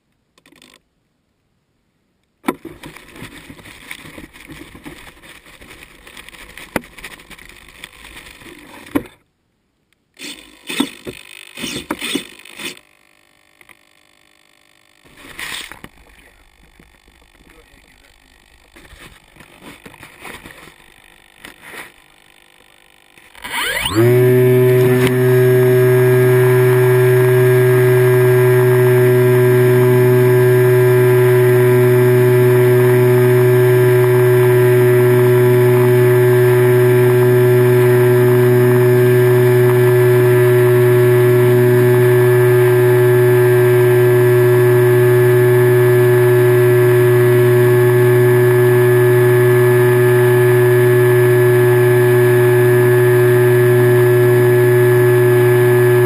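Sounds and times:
model airplane motor droning: 10.2s - 56.0s.

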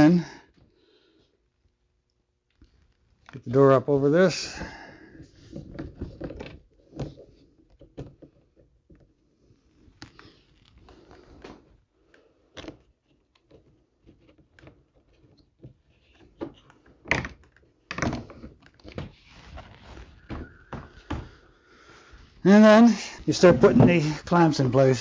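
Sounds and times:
rustling and scraping: 5.1s - 25.0s
plastic clicks and knocks: 12.5s - 19.1s.

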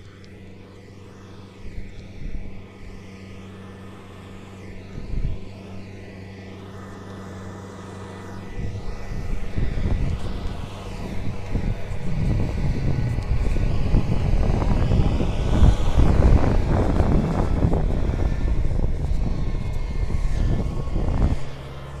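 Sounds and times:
combine harvester engine humming: 0.0s - 22.0s
wind buffeting microphone: 4.8s - 5.6s, 8.4s - 22.0s.

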